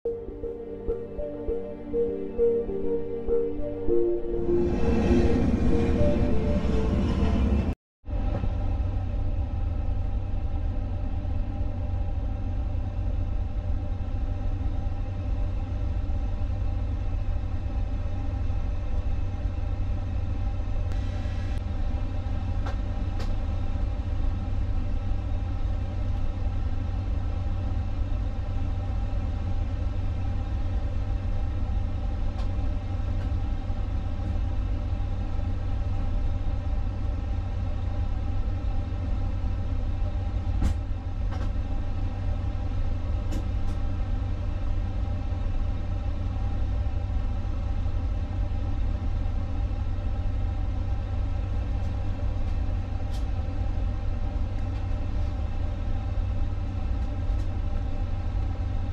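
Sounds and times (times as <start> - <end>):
low rumble: 0.1 - 14.4.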